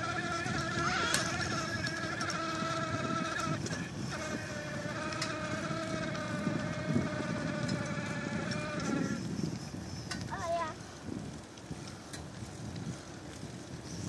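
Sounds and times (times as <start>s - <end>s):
electric bike motor whine: 0.0s - 14.0s.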